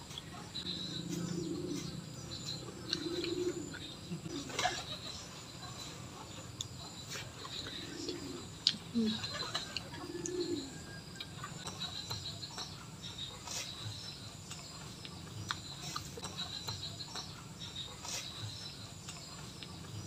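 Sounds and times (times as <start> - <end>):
birds chirping: 0.0 - 20.0
chewing: 0.1 - 4.4, 5.6 - 20.0
low bird coo: 0.7 - 5.0, 7.4 - 11.1.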